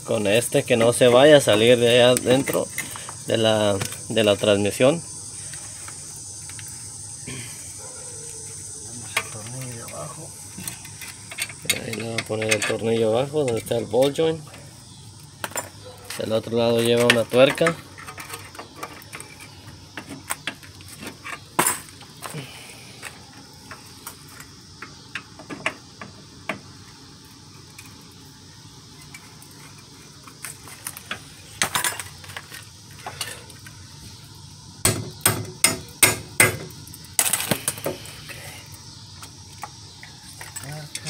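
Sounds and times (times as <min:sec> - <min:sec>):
metal tools and bolts clinking: 0:09.1 - 0:14.2.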